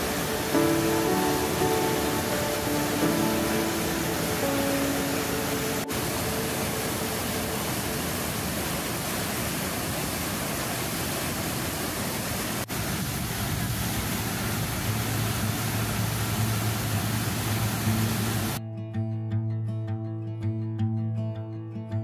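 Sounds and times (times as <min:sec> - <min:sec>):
low steady hum: 0:00.0 - 0:09.7
whitewater rushing over rock: 0:00.0 - 0:18.6.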